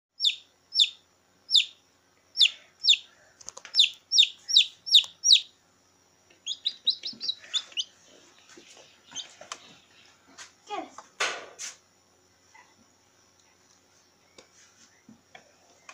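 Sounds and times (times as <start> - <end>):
chick peeping: 0.2 - 1.8, 2.4 - 5.6, 6.3 - 10.0.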